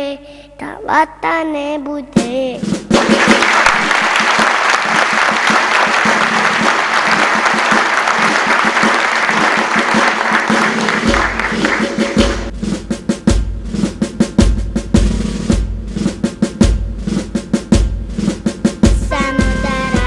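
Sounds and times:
snare drum strikes: 2.2 - 20.0
audience applauding: 3.0 - 12.5.

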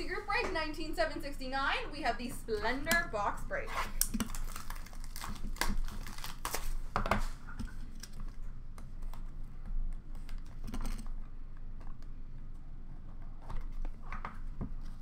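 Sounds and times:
foil packs rustling and clicking: 3.9 - 8.4.

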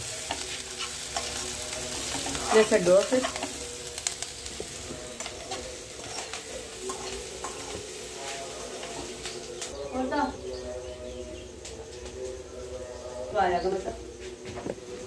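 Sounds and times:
vegetables sizzling in a pan: 0.0 - 11.5.

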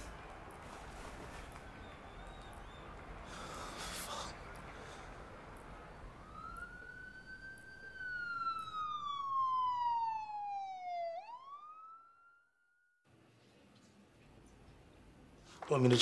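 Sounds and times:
emergency vehicle siren wailing: 0.0 - 12.6.

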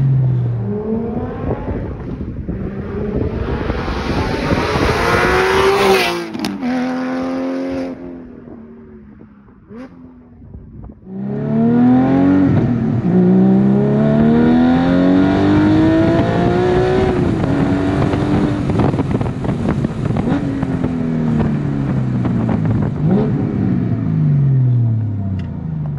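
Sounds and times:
sports car passing by: 0.0 - 10.5
car engine accelerating with upshifts: 0.0 - 25.9.

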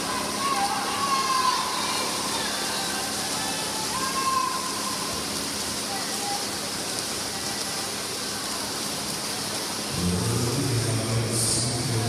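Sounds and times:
crowd noise: 0.0 - 12.0
water splashing from swimmers: 0.0 - 12.0
low steady hum: 9.8 - 12.0.

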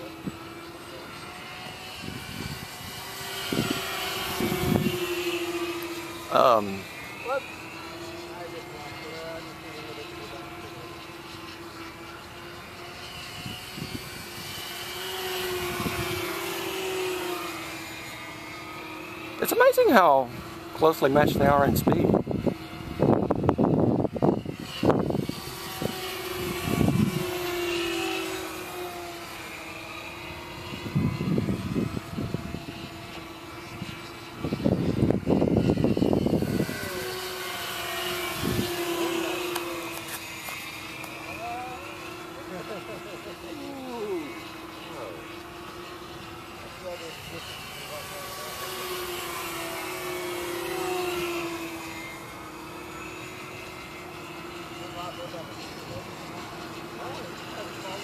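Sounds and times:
model airplane engines whining: 0.0 - 58.0
wind buffeting microphone: 1.5 - 6.9, 13.2 - 17.0, 19.4 - 27.7, 30.4 - 40.1.

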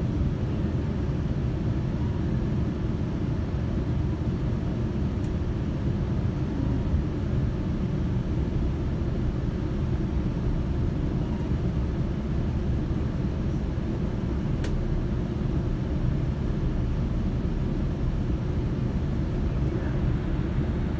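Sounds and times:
train rumbling: 12.4 - 20.9.

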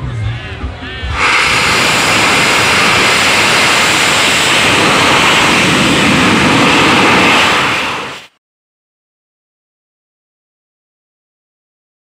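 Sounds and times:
rocket motor rushing: 1.2 - 8.4.

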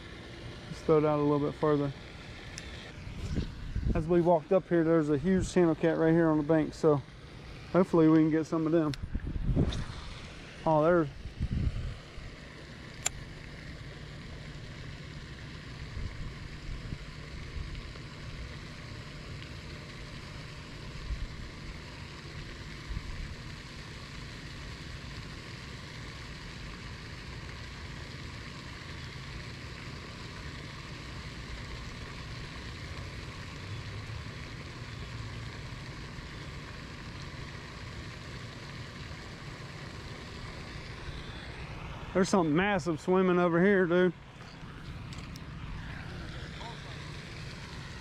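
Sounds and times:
low uneven rumble: 0.0 - 18.6, 31.0 - 48.0
fountain spray splashing on water: 0.0 - 48.0.

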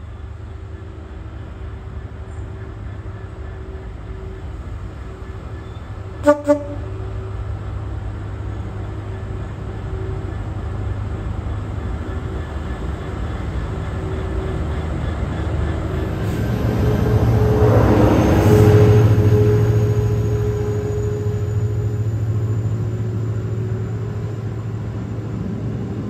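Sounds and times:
diesel locomotive droning: 0.0 - 26.0.

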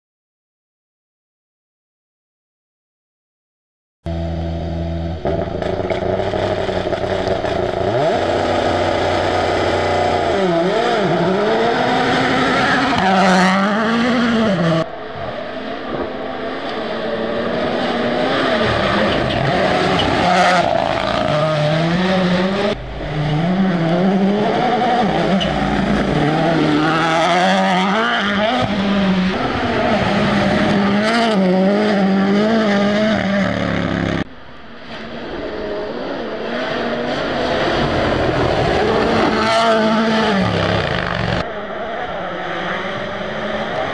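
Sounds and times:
rally car engine running hard: 4.1 - 14.8.

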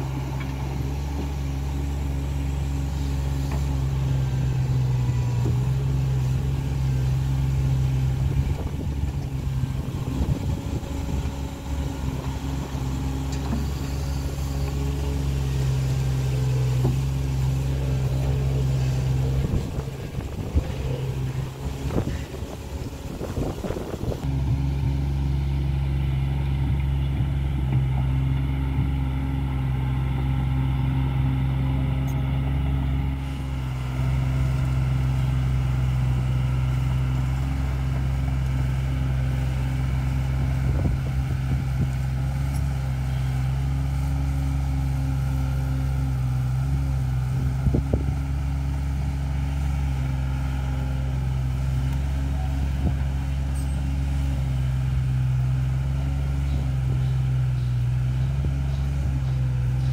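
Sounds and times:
excavator diesel engine running: 0.0 - 59.9.

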